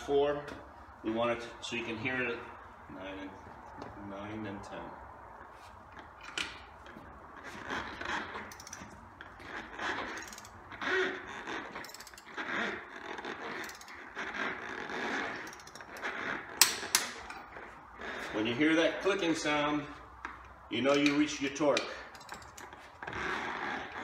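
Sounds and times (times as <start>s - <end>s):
torque wrench ratcheting: 8.4s - 8.9s, 9.5s - 17.4s, 21.8s - 23.8s.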